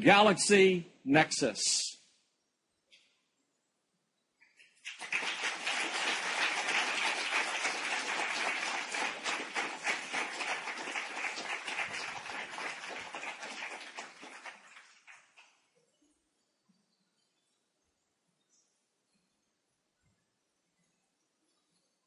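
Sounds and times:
large audience clapping: 4.8 - 15.6.

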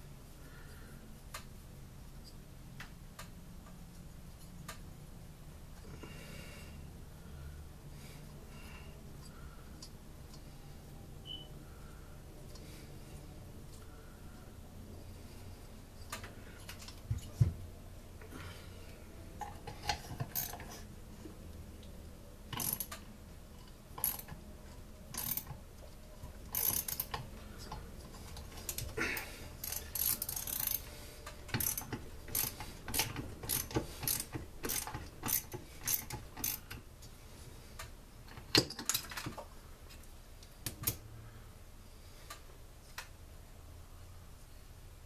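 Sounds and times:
ratchet wrench clicking: 19.8 - 20.6, 22.5 - 23.0, 24.0 - 24.4, 25.1 - 25.5, 26.5 - 27.2, 29.6 - 30.8, 31.5 - 36.8
metal parts clinking: 29.6 - 30.8.

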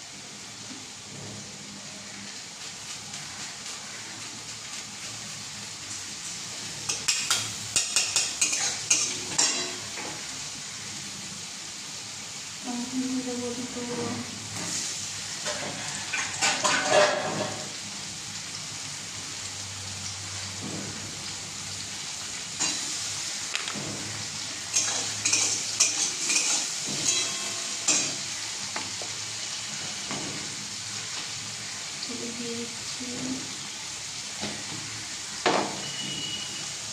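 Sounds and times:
food sizzling in a wok: 0.0 - 36.9
metal utensils scraping pan: 6.9 - 10.0, 15.4 - 17.7, 24.6 - 28.3.

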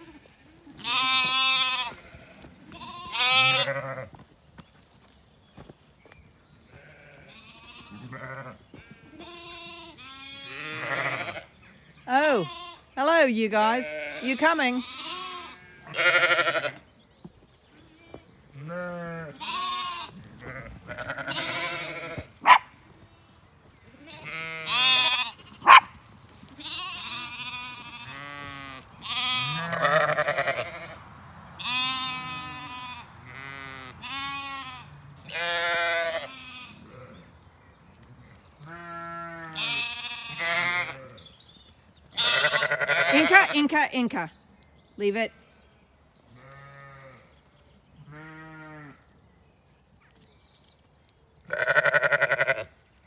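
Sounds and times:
sheep and lambs bleating: 0.0 - 4.2, 6.6 - 17.0, 17.7 - 37.4, 38.1 - 41.4, 42.1 - 44.3, 46.3 - 49.2, 51.4 - 52.8.

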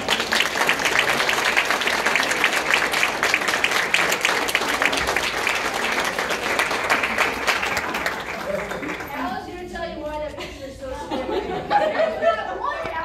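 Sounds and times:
crowd clapping and applauding: 0.0 - 9.4.

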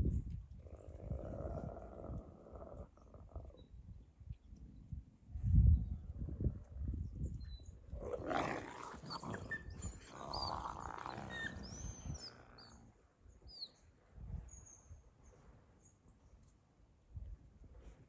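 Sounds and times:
wolves growling: 0.6 - 3.6, 7.9 - 13.0.

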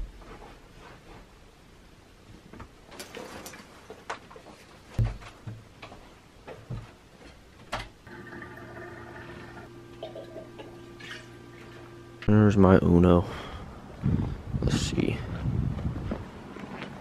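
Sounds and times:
footsteps in small room: 3.7 - 7.7, 15.2 - 17.0
steady hum with held tones: 8.0 - 15.2.

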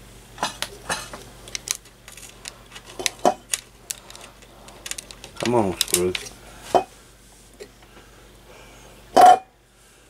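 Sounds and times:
metal parts clinking on steel: 1.5 - 6.3.

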